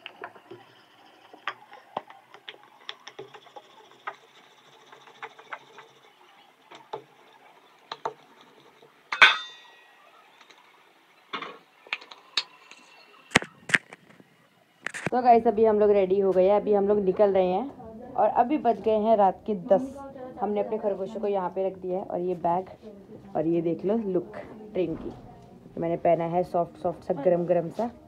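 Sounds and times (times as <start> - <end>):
rolling pin rolling dough: 0.0 - 10.8
metallic clank: 9.1 - 9.8.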